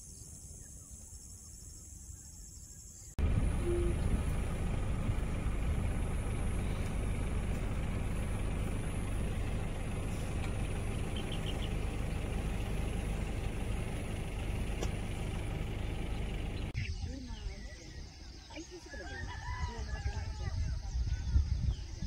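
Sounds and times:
wind buffeting microphone: 19.6s - 22.0s.

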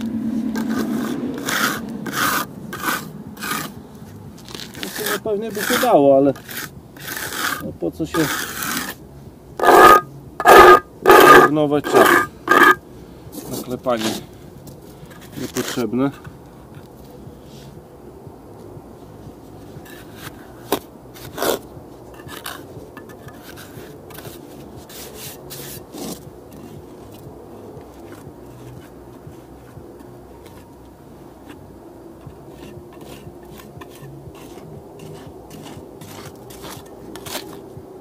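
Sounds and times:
trowel scraping mortar: 0.4s - 3.8s, 4.4s - 9.0s, 9.6s - 12.8s, 13.4s - 14.3s, 15.1s - 16.3s, 19.8s - 27.2s, 27.8s - 30.6s, 32.5s - 37.7s.

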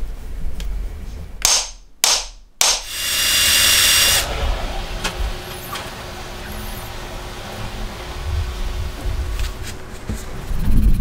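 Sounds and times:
high-pitched whir: 2.8s - 9.4s.

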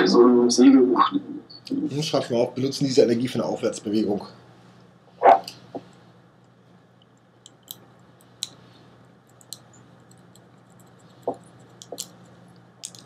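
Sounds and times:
steady low hum: 0.0s - 13.0s
pencil clicking and tapping: 7.0s - 8.6s, 9.3s - 13.0s.

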